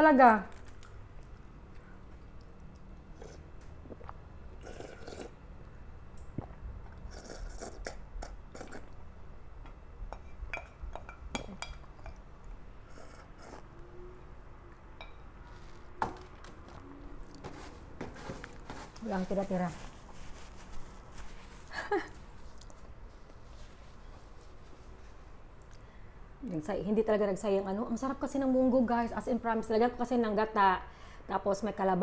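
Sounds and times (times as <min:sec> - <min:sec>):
wooden spoon scraping container: 0:16.7 - 0:21.6.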